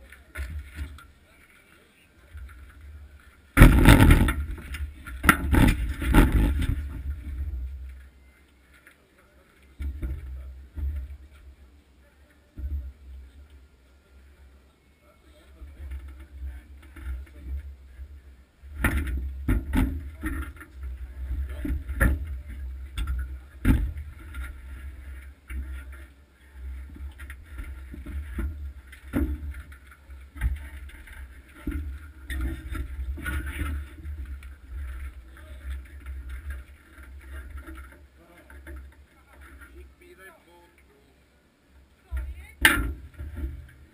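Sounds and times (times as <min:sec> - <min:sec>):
knocks and clatter on bobsleigh: 0:02.4 - 0:07.9, 0:15.6 - 0:39.9.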